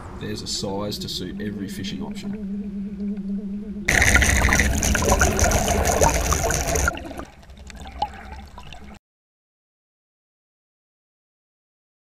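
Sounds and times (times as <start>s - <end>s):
rushing bubbling water: 3.9s - 9.0s.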